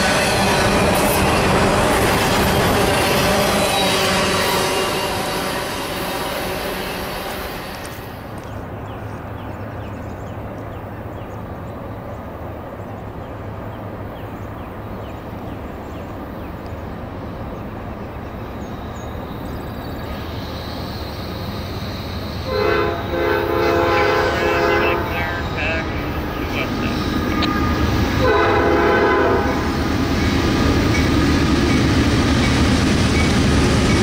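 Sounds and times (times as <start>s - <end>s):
train horn blasts: 0.0s - 8.2s, 22.4s - 26.0s, 27.2s - 29.7s
freight train rumbling: 0.0s - 34.0s.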